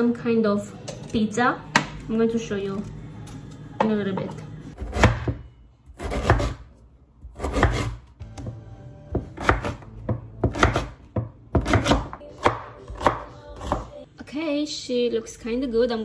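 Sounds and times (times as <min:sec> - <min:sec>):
knife slicing onto cutting board: 0:07.3 - 0:08.0.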